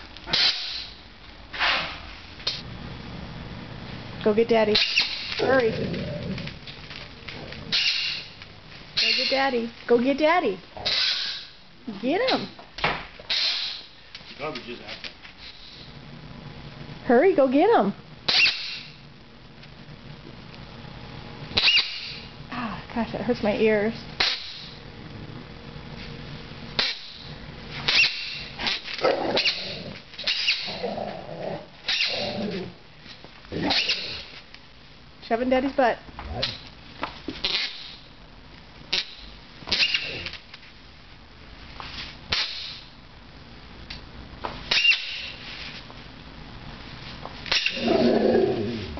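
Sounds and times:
squeaky toy squeaking: 9.0 - 9.5.

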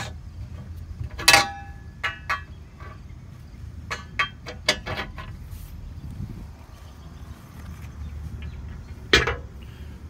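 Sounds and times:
steel tube clanking: 0.0 - 3.2, 3.8 - 5.7, 9.1 - 9.5.

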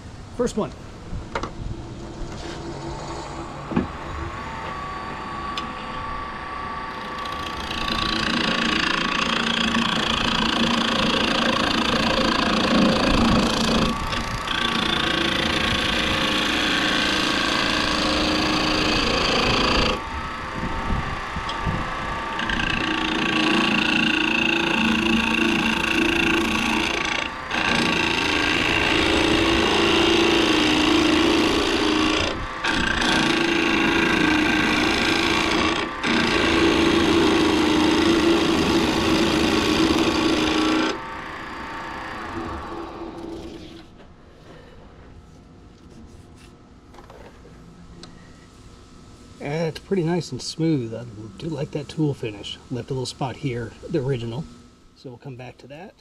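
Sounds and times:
wood lathe humming: 2.4 - 44.6
chisel shaving spinning wood: 6.9 - 20.4, 21.2 - 43.8.

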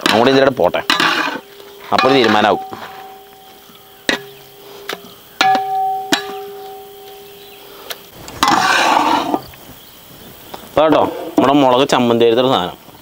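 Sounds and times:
spoon knocking metal pan: 1.9 - 4.5, 5.4 - 7.4.

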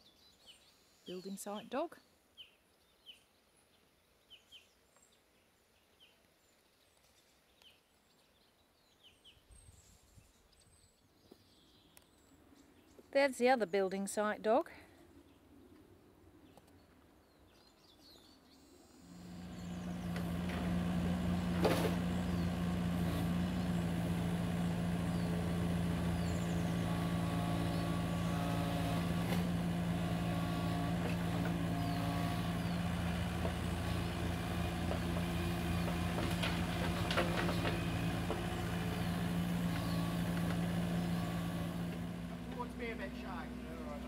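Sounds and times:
excavator diesel engine under load: 19.1 - 44.0.

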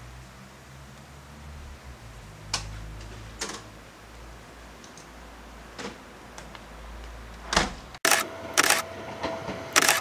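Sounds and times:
sharp ringing clicks: 8.0 - 8.8, 9.8 - 10.0.

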